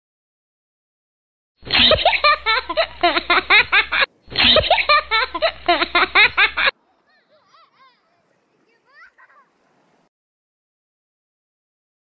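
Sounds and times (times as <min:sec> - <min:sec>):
small child giggling: 0:01.6 - 0:09.7.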